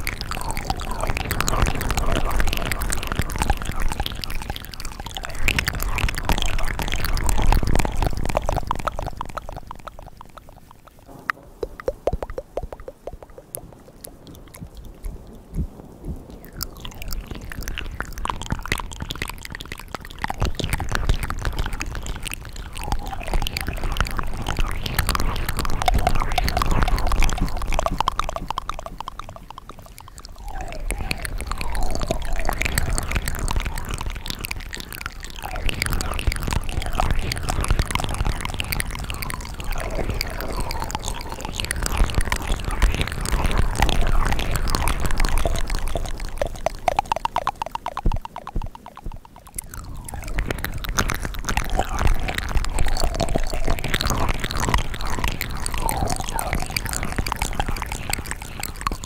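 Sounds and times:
wet mouth clicks and smacks: 0:00.0 - 0:59.0.

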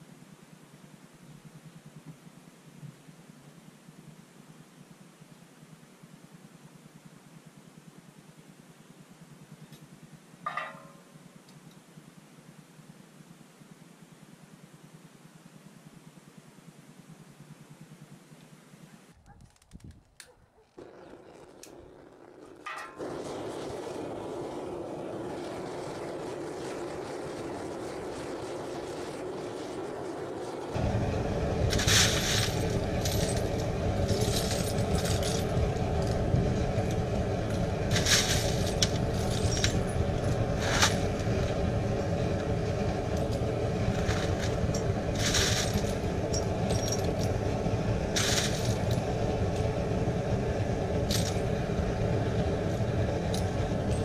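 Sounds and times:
furnace rushing noise: 0:23.0 - 0:54.0.

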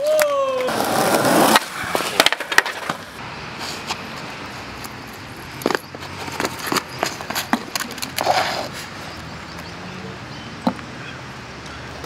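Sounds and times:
shoes scuffing on concrete: 0:01.2 - 0:05.0, 0:05.6 - 0:08.9.

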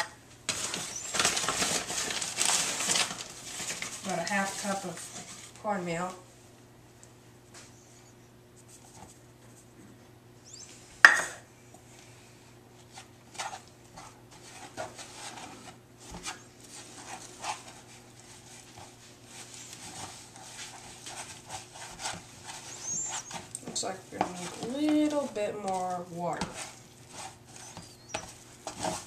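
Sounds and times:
faint steady hum: 0:00.0 - 0:29.0
spatula scraping paste in tub: 0:19.7 - 0:29.0.

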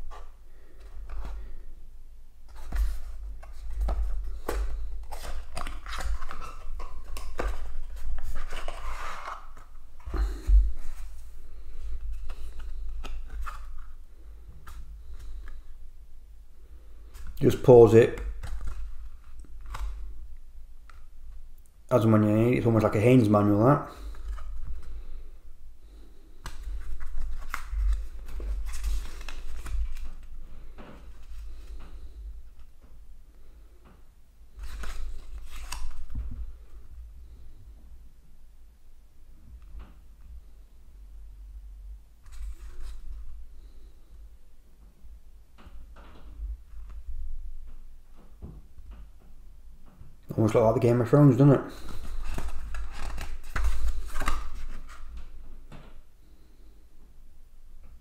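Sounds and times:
card pages turning: 0:02.5 - 0:14.0, 0:17.1 - 0:20.1, 0:26.4 - 0:30.4, 0:34.6 - 0:36.2, 0:51.7 - 0:55.2.

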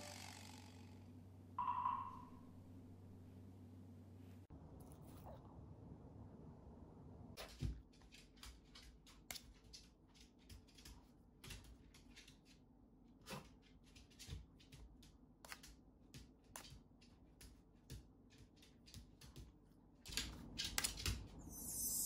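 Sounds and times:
dog claws clicking on wood floor: 0:07.4 - 0:12.6, 0:13.3 - 0:21.4.

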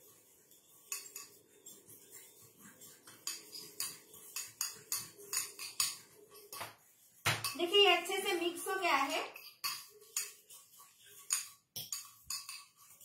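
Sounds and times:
spoon scraping ceramic bowl: 0:00.0 - 0:13.0.

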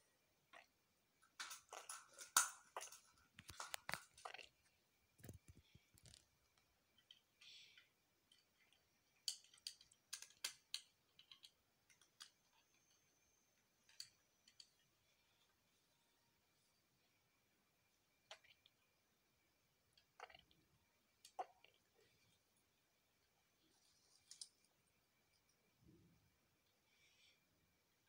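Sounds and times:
plastic bricks clicking: 0:09.2 - 0:12.4.

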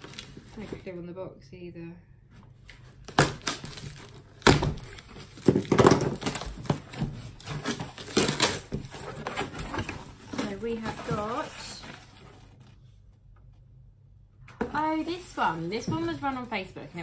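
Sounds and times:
packaging rustling: 0:00.0 - 0:00.9, 0:02.7 - 0:12.8, 0:14.6 - 0:17.0
cardboard packaging knocks and rips: 0:03.0 - 0:12.4, 0:14.6 - 0:17.0.

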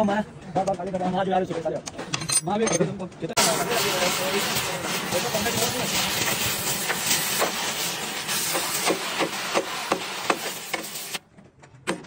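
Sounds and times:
steady hiss: 0:03.4 - 0:11.2.

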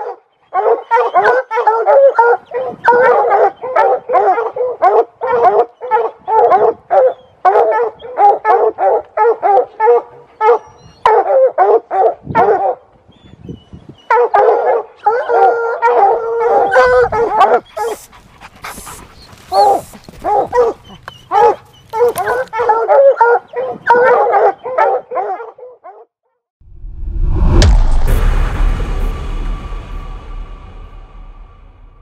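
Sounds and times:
hound baying: 0:14.1 - 0:26.0.

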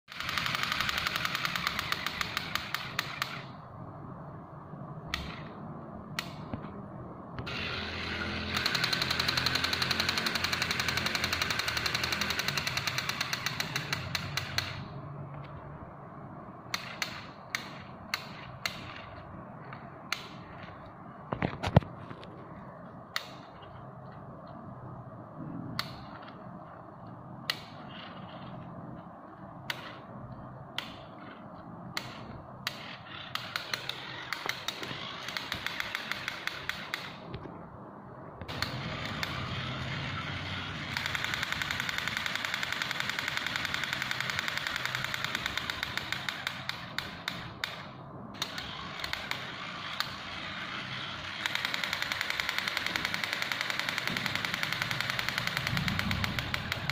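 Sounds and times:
toy motor and gearbox clicking: 0:00.1 - 0:03.6, 0:07.4 - 0:14.9, 0:16.7 - 0:20.8, 0:30.8 - 0:37.2, 0:38.5 - 0:56.9.

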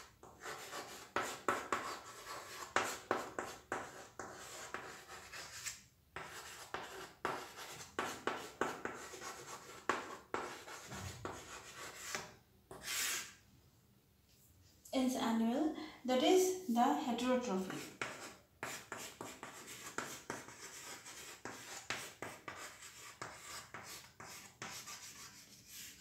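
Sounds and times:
chalk scratching on chalkboard: 0:00.0 - 0:13.4, 0:17.6 - 0:26.0.

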